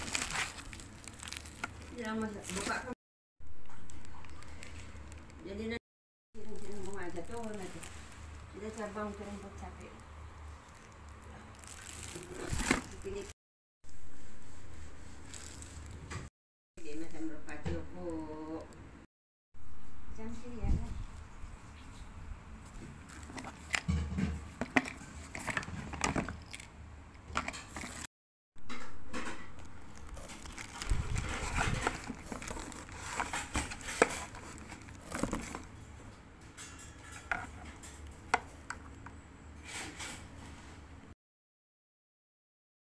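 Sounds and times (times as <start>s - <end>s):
packaging crinkling: 0.0s - 3.0s, 3.6s - 5.5s, 6.4s - 13.3s, 15.2s - 16.0s, 23.0s - 23.9s, 24.5s - 26.7s, 27.3s - 28.1s, 29.6s - 35.8s.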